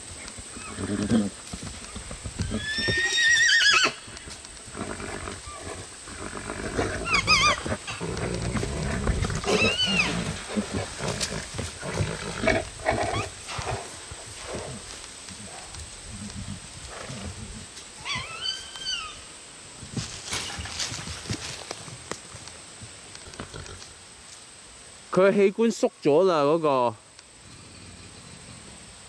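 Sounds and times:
rough low horse sounds: 0.0s - 19.0s, 19.8s - 24.0s
horses squealing: 0.0s - 19.3s.

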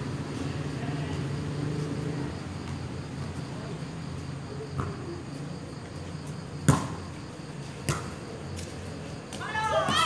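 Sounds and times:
crickets chirping: 0.0s - 10.0s.

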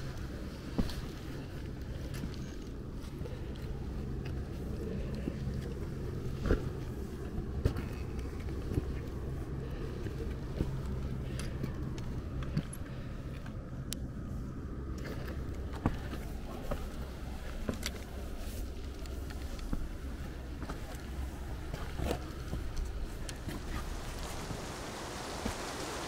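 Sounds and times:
footsteps on rock: 15.0s - 23.9s.

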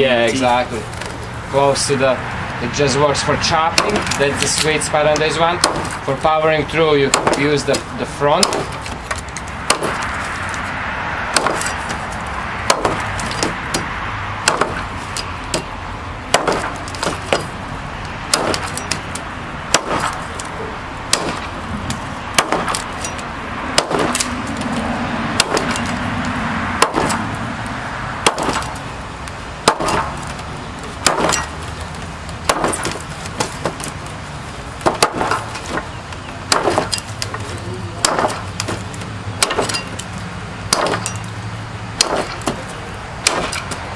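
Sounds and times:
knife chopping into log: 7.1s - 10.1s.

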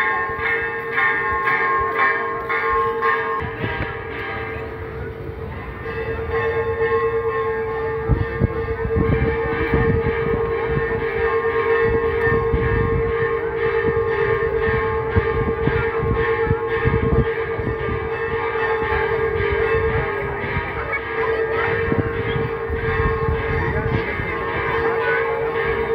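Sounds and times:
church bells pealing: 0.0s - 25.9s.

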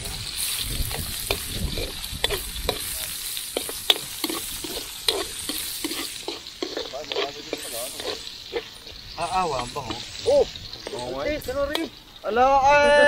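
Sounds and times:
food sizzling in oil: 0.0s - 13.0s
ladle scraping and knocking pan: 0.8s - 9.1s.

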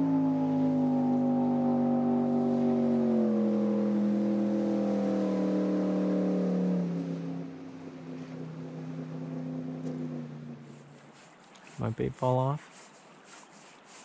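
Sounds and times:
motorboat engine passing: 0.0s - 13.8s.

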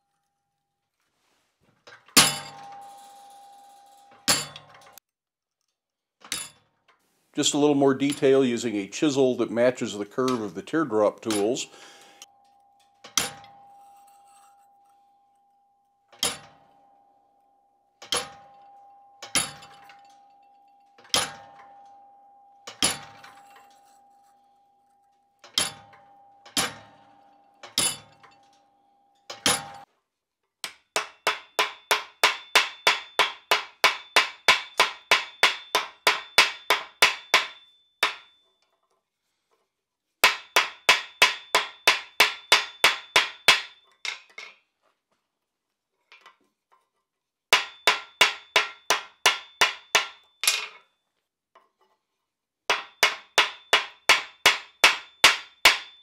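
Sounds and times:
hammer striking chisel on steel: 7.5s - 15.2s, 18.0s - 29.9s, 30.6s - 38.4s, 40.2s - 44.3s, 47.5s - 50.8s, 52.7s - 56.0s
rapid hammer blows on hot metal: 31.0s - 38.3s, 40.2s - 43.7s, 52.7s - 56.0s.

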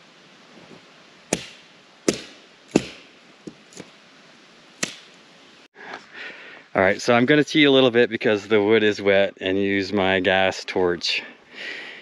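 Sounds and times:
hatchet chopping log: 1.3s - 3.6s, 4.8s - 5.1s.

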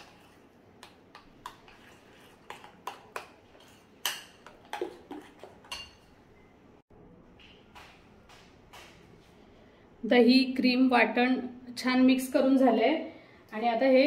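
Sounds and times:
spoon clinking in glass bowl: 5.6s - 6.1s.

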